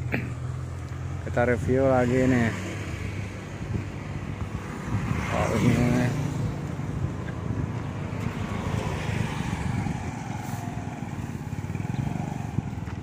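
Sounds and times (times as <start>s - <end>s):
steady low traffic rumble: 0.0s - 13.0s
motor scooter engine passing: 4.6s - 13.0s.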